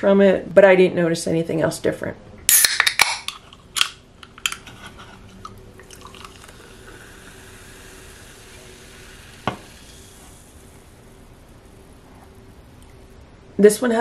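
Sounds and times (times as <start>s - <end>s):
water poured into a glass: 5.8s - 10.4s.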